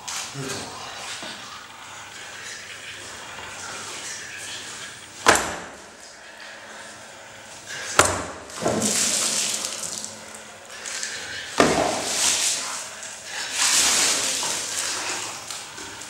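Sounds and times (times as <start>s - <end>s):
liquid gushing and splashing: 3.7s - 16.0s.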